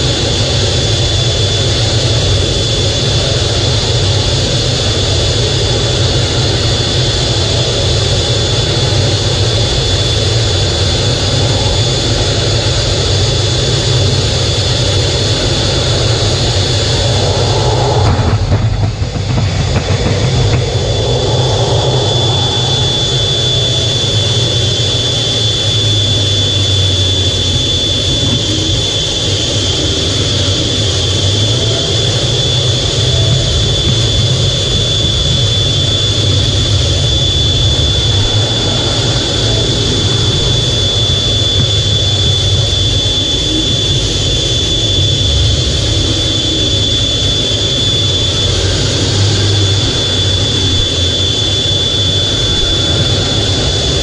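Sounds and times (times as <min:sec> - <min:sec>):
high engine whine: 0:00.0 - 0:54.0
jet engine rumble: 0:00.0 - 0:54.0.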